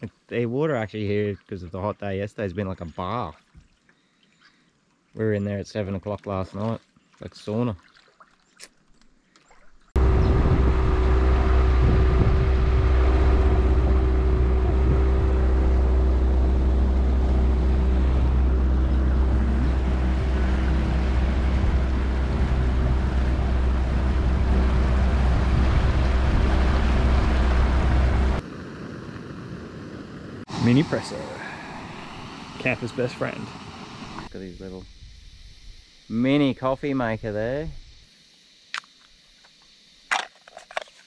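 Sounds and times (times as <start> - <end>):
outboard motor running: 10.0 - 28.4
wind rushing over microphone: 10.0 - 35.8.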